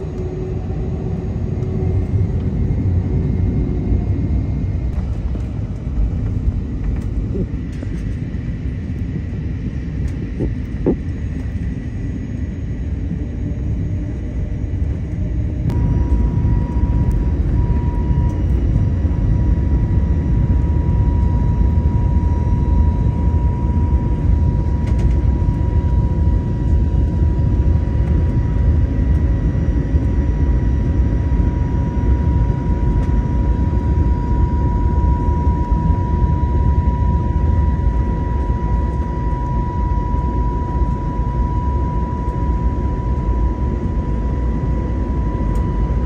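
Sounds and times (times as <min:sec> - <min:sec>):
high whine: 0:00.0 - 0:46.0
jet airliner rumble: 0:00.0 - 0:46.0
jet engine cabin roar: 0:00.0 - 0:46.0.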